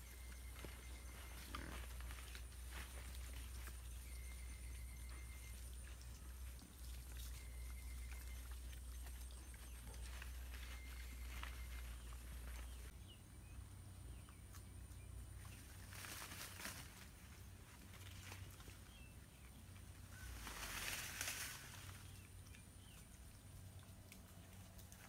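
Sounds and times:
faint bird chirps: 0.0s - 13.2s
pigs rooting in leaf litter: 0.0s - 13.4s, 14.0s - 25.0s.

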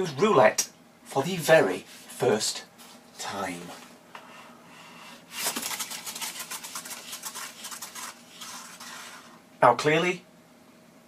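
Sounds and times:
spinning wheel scratchy ticking: 5.4s - 9.4s.

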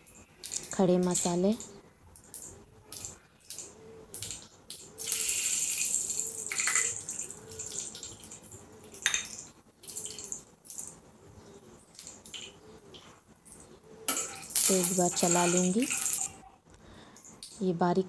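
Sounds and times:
hot oil sizzling: 0.0s - 1.7s, 2.3s - 10.9s, 13.4s - 16.4s
spices clicking and tapping: 0.0s - 11.0s, 11.9s - 16.4s.

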